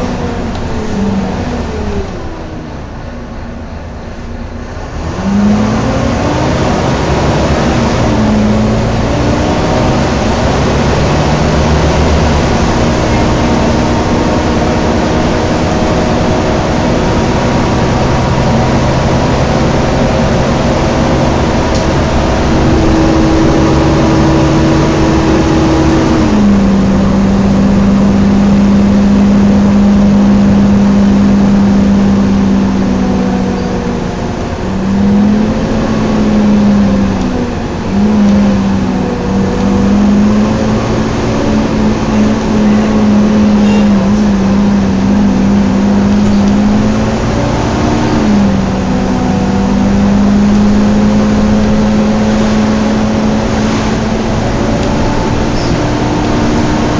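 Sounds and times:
bus cooling fan whine: 0.0s - 56.9s
diesel engine: 0.0s - 56.9s
road noise: 0.0s - 56.9s.

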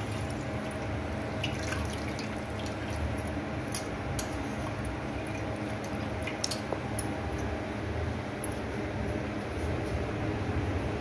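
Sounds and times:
water splashing in a bowl: 0.0s - 7.1s
sharp water drips: 0.0s - 7.2s
steady low hum: 0.0s - 11.0s.

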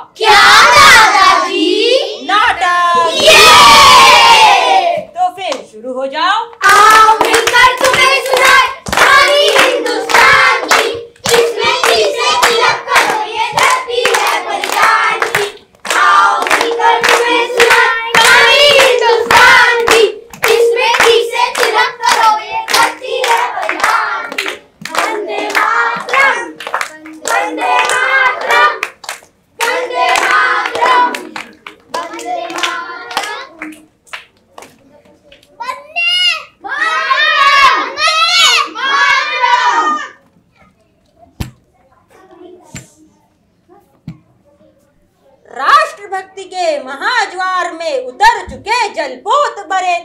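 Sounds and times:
children singing: 0.0s - 5.0s, 6.6s - 28.9s, 29.6s - 33.7s
hands clapping in rhythm: 6.6s - 35.6s.

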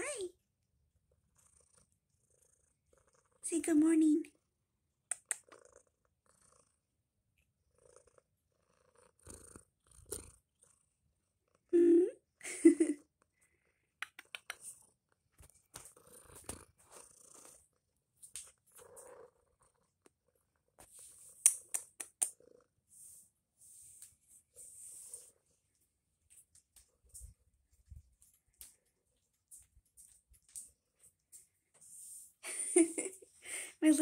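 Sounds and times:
cat purring: 0.0s - 25.9s.

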